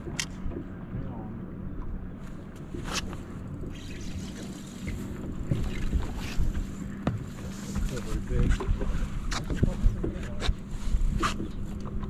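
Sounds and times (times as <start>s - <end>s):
water lapping against boat hull: 0.0s - 12.0s
wind on microphone: 2.9s - 12.0s.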